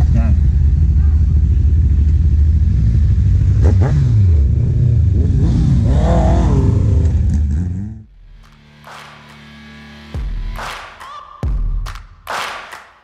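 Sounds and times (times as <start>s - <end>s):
motorcycle engines revving: 0.0s - 8.1s.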